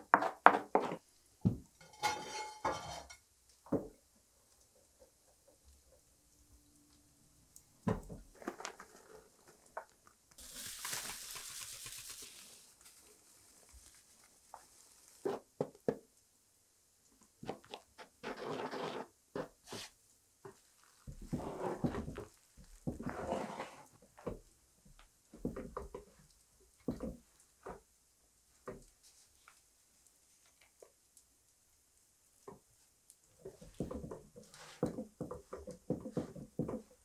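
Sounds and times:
flour pouring hiss: 10.4 - 15.3
wooden spoon scraping dough: 17.5 - 24.0, 33.4 - 37.0.

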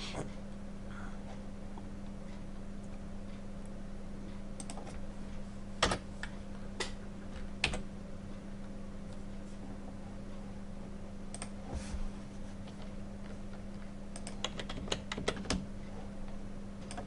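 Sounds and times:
low hum: 0.0 - 17.0
computer keyboard keystrokes: 14.1 - 15.7.

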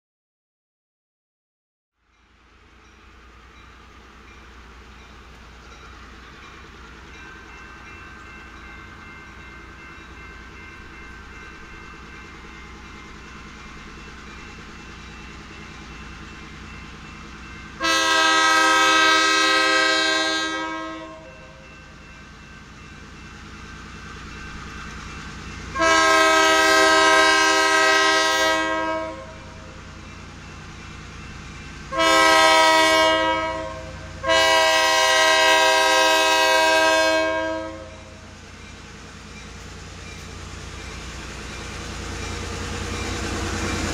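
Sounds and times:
train rumble: 2.1 - 43.9
locomotive air horn blasts: 17.8 - 21.3, 25.8 - 29.4, 31.9 - 38.1.

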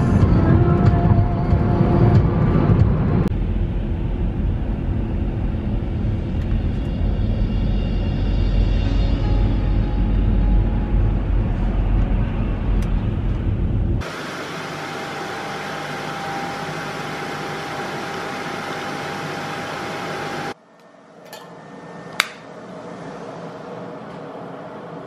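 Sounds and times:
road rumble inside a car: 10.6 - 14.0
coffee machine whirring hiss: 14.0 - 20.6.

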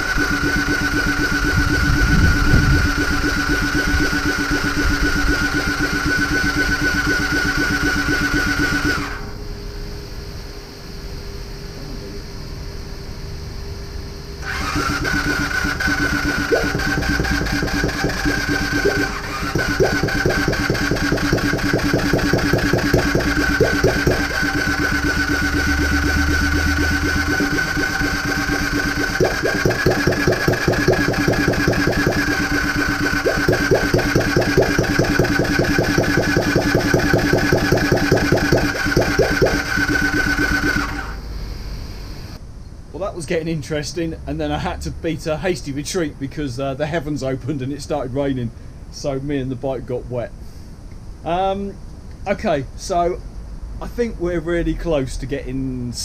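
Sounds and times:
motorcycle starter cranking: 0.0 - 9.2, 14.4 - 41.2
engine firing pops: 14.6 - 41.0.

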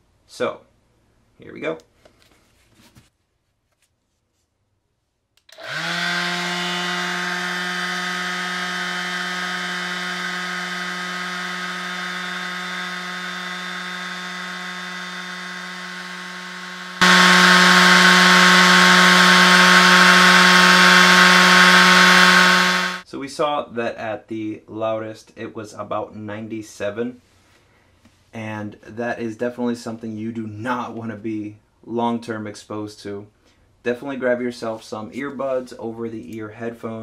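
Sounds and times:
orbital sander humming: 5.5 - 23.0.

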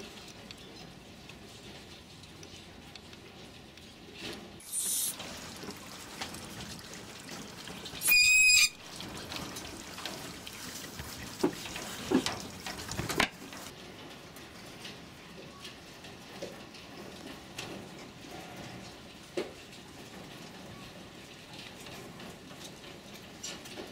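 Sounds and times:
mink squealing: 8.0 - 8.8
scrapes and knocks on wire mesh: 9.0 - 23.9.

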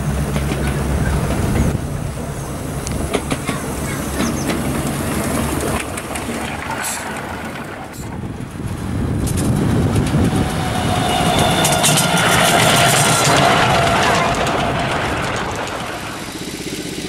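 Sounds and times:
miniature train rolling on track: 0.0 - 17.0
locomotive motor whine: 4.3 - 17.0.

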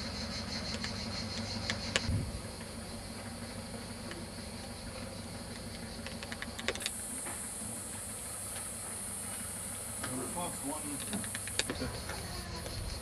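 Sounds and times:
street ambience hiss: 0.0 - 13.0
high hiss: 6.8 - 11.6.

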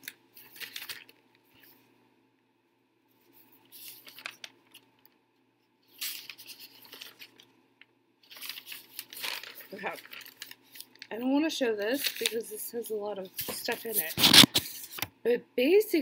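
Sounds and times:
paper rustling: 0.0 - 1.8, 3.1 - 5.1, 5.8 - 7.5, 8.2 - 11.1, 11.8 - 12.6, 13.3 - 15.1.

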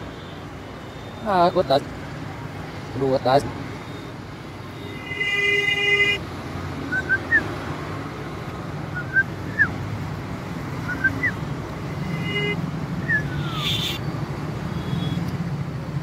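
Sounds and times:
traffic rumble: 0.0 - 16.0
vehicle horn: 4.8 - 6.2, 11.9 - 12.6, 13.5 - 14.0.

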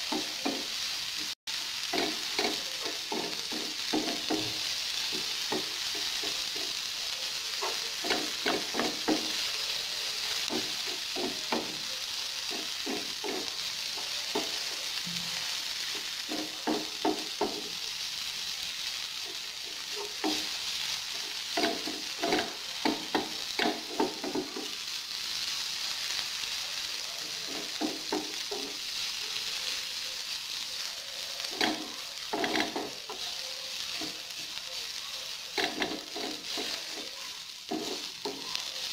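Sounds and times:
onion sizzling in oil: 0.0 - 38.9
wooden spatula scraping pan: 2.0 - 6.8, 10.4 - 13.7, 31.5 - 33.3, 35.6 - 38.6.

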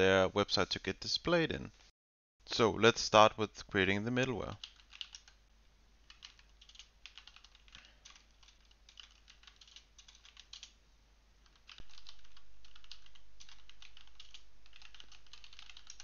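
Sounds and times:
typing on computer keyboard: 4.6 - 5.4, 6.0 - 10.8, 11.4 - 16.0.

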